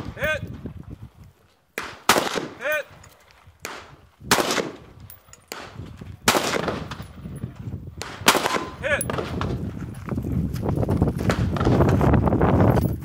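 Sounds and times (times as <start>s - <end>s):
gunshots: 1.8s - 2.9s, 3.6s - 7.2s, 8.0s - 9.6s.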